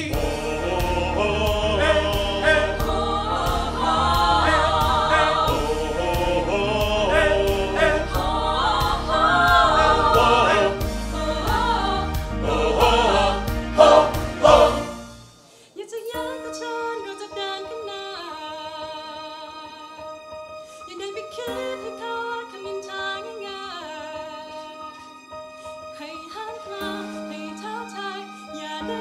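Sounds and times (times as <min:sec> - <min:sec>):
mixed choir singing: 0:00.0 - 0:15.1.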